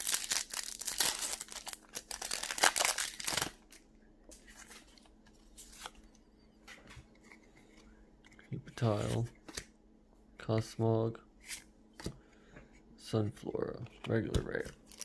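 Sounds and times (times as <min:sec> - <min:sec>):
foil wrapper tearing and crinkling: 0:00.0 - 0:03.6.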